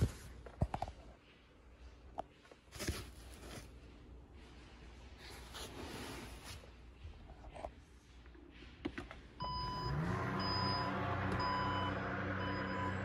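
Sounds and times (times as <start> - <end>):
warning beep: 9.4 - 13.0
electric tailgate motor humming: 9.7 - 13.0.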